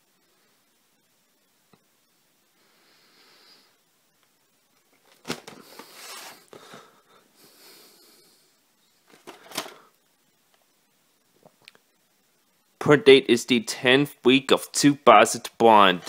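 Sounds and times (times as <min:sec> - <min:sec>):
rustling and sliding of tape: 0:04.1 - 0:06.9.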